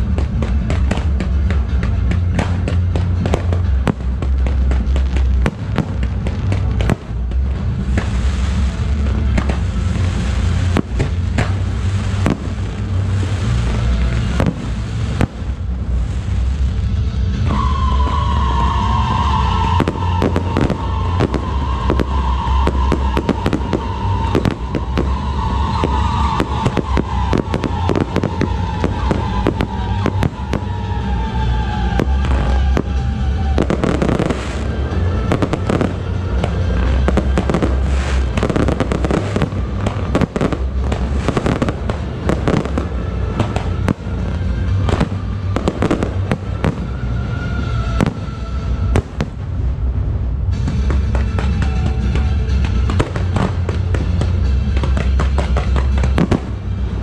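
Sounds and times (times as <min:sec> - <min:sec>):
deep rumble: 0:00.0 - 0:57.0
fireworks bangs and crackle: 0:00.0 - 0:57.0
long tone sliding down: 0:16.9 - 0:50.2.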